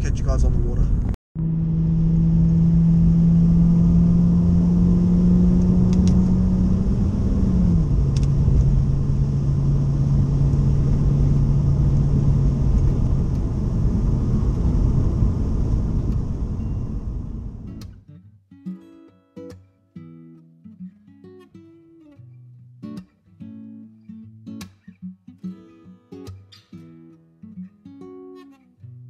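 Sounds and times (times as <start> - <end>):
road noise inside car: 0.4 - 17.8
car engine hum: 0.8 - 17.7.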